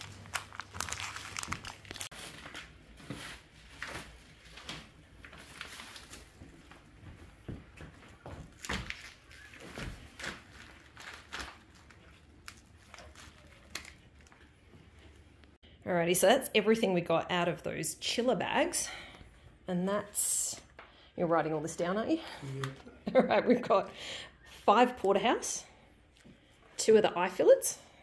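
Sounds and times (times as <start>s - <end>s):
plastic packaging crinkling: 0.0s - 2.8s, 8.5s - 14.6s.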